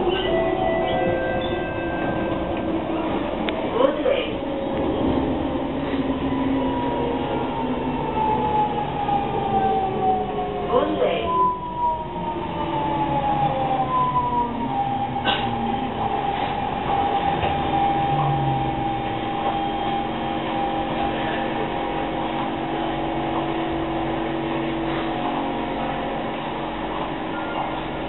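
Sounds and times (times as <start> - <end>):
train carriage rumble: 0.0 - 28.0
train motor whine: 11.6 - 28.0.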